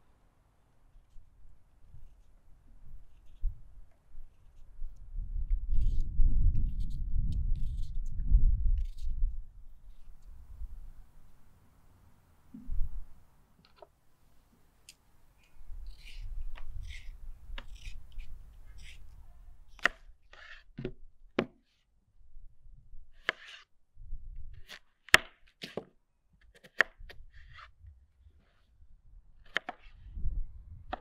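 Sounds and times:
peeler scraping potato skin: 15.8s - 20.7s.

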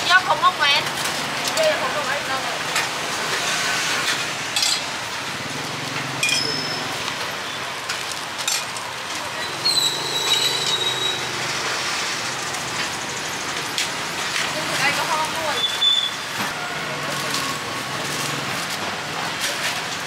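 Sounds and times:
traffic: 0.0s - 20.0s
spoons clinking on metal bowls: 4.6s - 4.9s, 6.2s - 7.0s, 8.4s - 8.8s.

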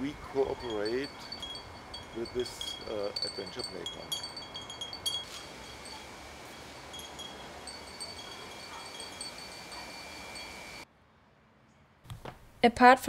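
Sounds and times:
high-pitched chirping notes: 0.0s - 10.8s
steady hiss: 0.0s - 10.8s.

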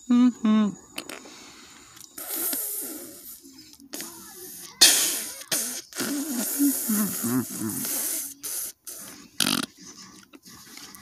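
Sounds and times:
person making mouth hissing sounds: 0.0s - 9.7s.

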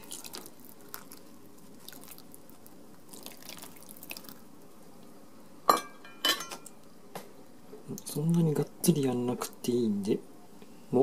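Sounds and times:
water trickling through colander: 0.0s - 4.6s.

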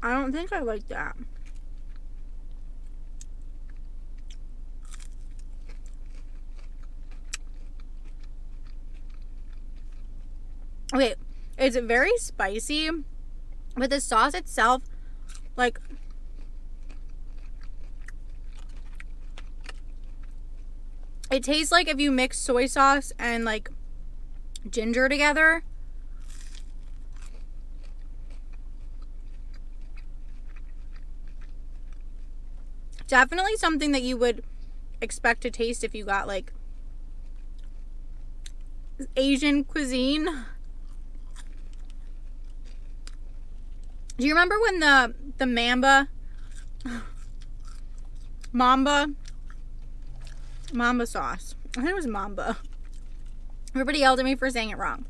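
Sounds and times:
steady low hum: 0.0s - 55.0s
person chewing: 1.2s - 11.3s, 14.8s - 21.3s, 26.1s - 33.0s, 37.2s - 38.7s, 40.4s - 44.2s, 46.2s - 50.8s, 52.5s - 53.8s.

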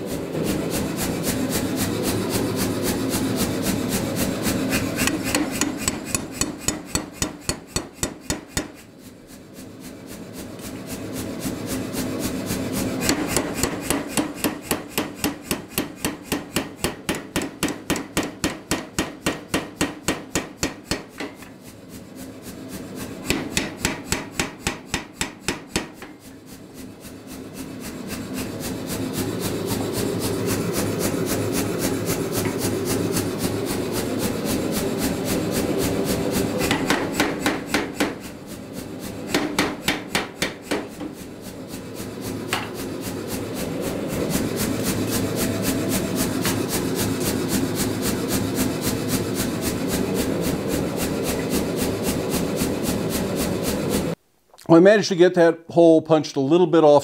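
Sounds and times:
power hammer striking hot steel: 4.2s - 8.9s, 11.6s - 21.6s, 23.0s - 26.4s, 27.3s - 48.0s.

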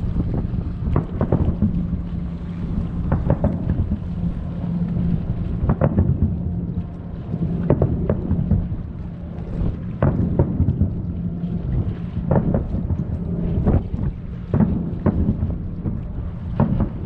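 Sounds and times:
low rumble with hum: 0.0s - 17.0s
fireworks booming: 3.1s - 4.1s.

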